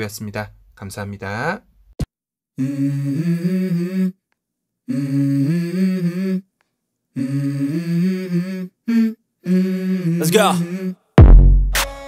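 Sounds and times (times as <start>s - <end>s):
person humming a melody: 2.6s - 4.2s, 4.8s - 6.5s, 7.1s - 11.2s.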